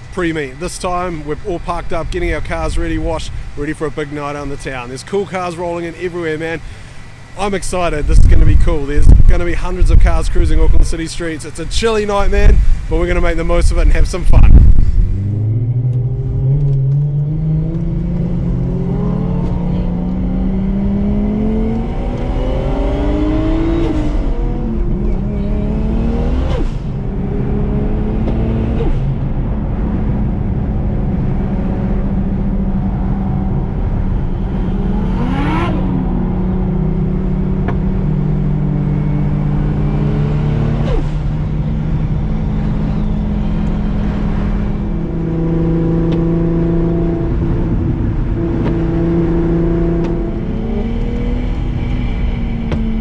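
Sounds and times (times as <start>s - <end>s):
car engine accelerating: 13.7s - 53.0s.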